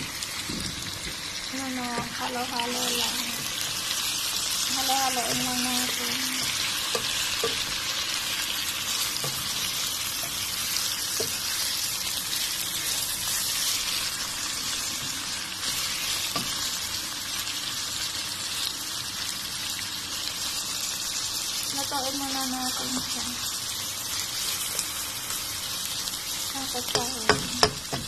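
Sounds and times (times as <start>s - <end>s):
chicken sizzling in hot oil: 0.0s - 28.0s
spatula clicking against pan: 26.8s - 28.0s.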